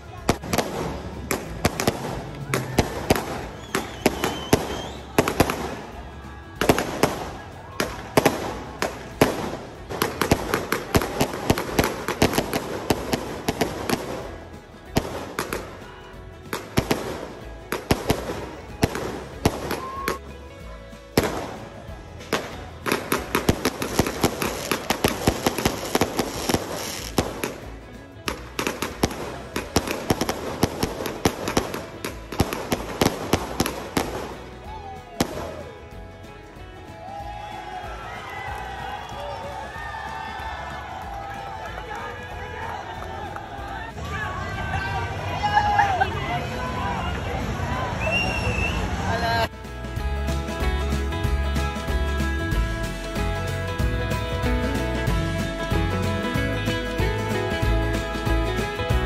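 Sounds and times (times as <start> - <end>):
fireworks bangs and crackles: 0.0 - 37.5.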